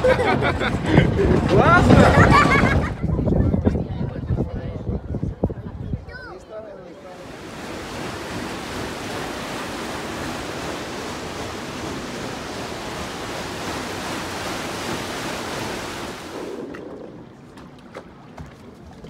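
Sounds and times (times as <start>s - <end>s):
water rushing along a channel: 7.0s - 19.0s.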